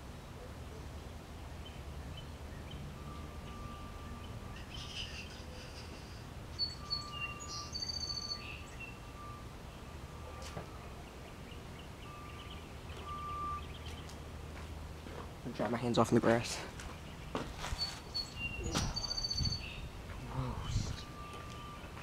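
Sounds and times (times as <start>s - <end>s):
small birds chirping: 0.2s - 22.0s
steady low rumble: 18.4s - 22.0s.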